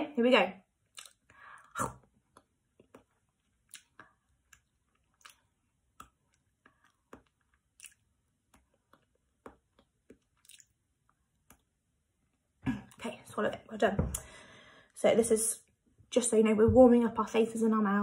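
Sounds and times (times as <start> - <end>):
wet mouth clicks and lip smacks: 0.9 - 1.3, 2.3 - 10.7.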